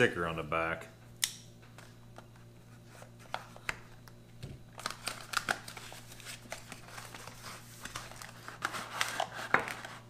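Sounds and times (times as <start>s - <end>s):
cardboard and packaging rustling: 4.6s - 10.0s.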